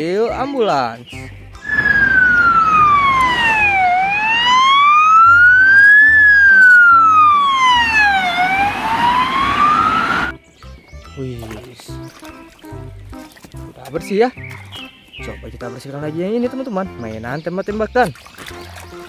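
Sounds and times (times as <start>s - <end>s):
ambulance siren wailing: 1.6s - 10.3s.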